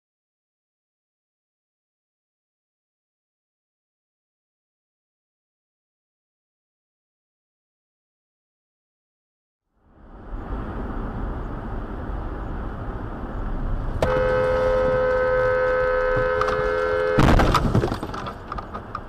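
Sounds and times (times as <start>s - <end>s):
car road noise: 9.7s - 19.0s
car horn: 14.0s - 18.3s
loud car crash: 16.2s - 18.8s.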